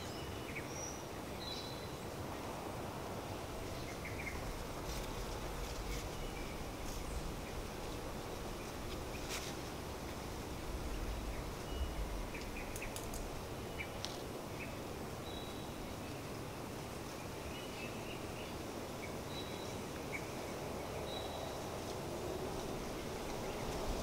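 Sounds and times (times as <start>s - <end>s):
wind rumbling on microphone: 2.0s - 16.0s, 20.0s - 24.0s.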